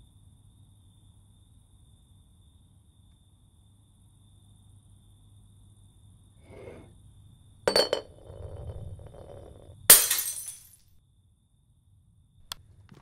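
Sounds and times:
glass rolling rumble: 6.4 - 6.9, 7.7 - 10.7
glass clinking on countertop: 7.7 - 10.7
glass shattering: 9.9 - 10.8.

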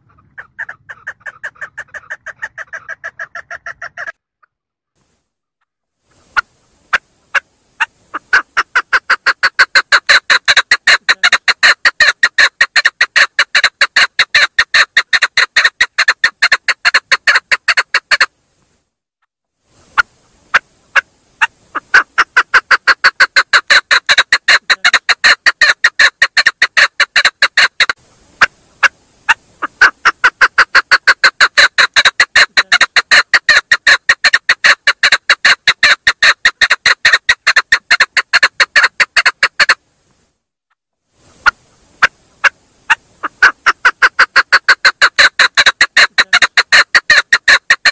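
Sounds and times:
partridge clucking calls: 0.0 - 4.5, 6.1 - 18.3, 19.8 - 39.8, 41.3 - 47.9.

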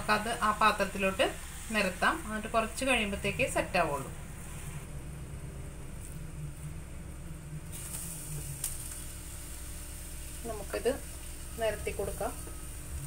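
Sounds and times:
mixture sizzling in a pan: 0.0 - 13.0
steady low hum: 0.0 - 13.0.

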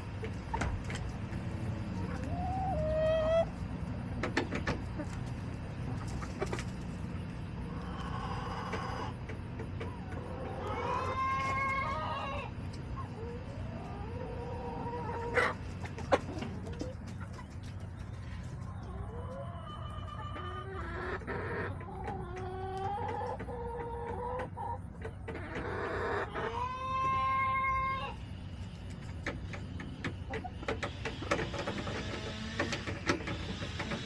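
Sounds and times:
steady low hum: 0.0 - 11.6, 24.0 - 34.0
chickens clucking: 0.0 - 34.0.

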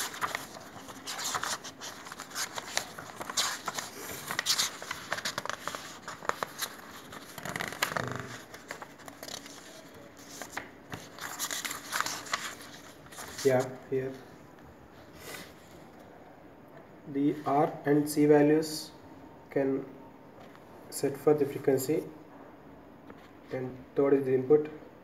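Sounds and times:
paper rustling and crinkling: 0.0 - 13.8.

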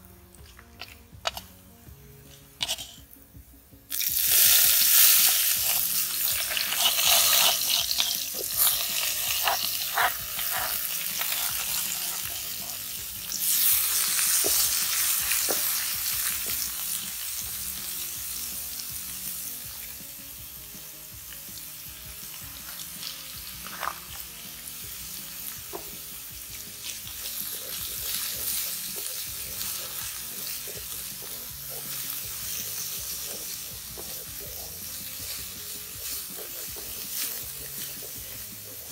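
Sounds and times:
beans sizzling in oil: 0.0 - 38.9
spoon scraping bowl and pan: 0.7 - 1.6, 2.2 - 3.1, 4.3 - 16.0, 22.6 - 24.2, 26.6 - 38.9.

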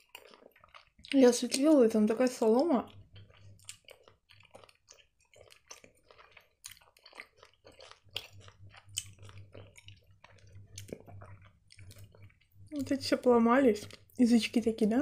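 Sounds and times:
chewing gummy candy: 0.0 - 14.3
wet mouth clicks and smacks: 2.9 - 12.5.

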